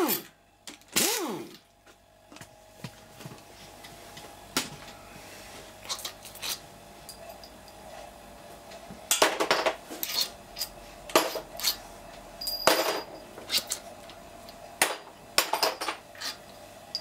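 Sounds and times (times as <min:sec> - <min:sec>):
metallic clinks and clatters: 0:12.4 - 0:13.8.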